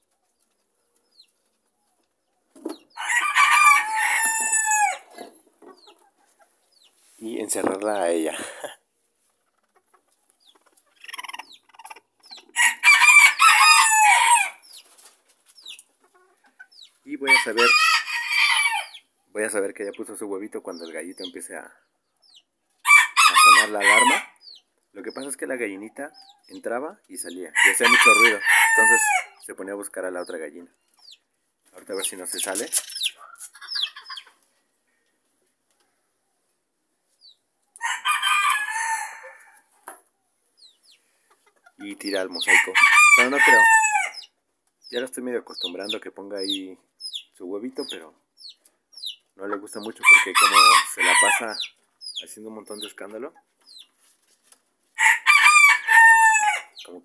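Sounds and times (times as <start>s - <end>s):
chickens clucking: 0.0s - 17.8s, 18.8s - 57.0s
rooster crowing: 3.0s - 5.1s, 12.6s - 14.6s, 17.3s - 19.0s, 22.9s - 24.3s, 27.6s - 29.3s, 37.8s - 39.7s, 42.4s - 44.2s, 50.0s - 51.6s, 55.0s - 56.7s.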